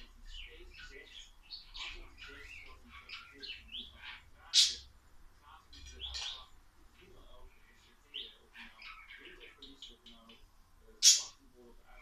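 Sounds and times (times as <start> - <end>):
budgerigar chirping and warbling: 0.4 - 4.9, 11.0 - 11.4.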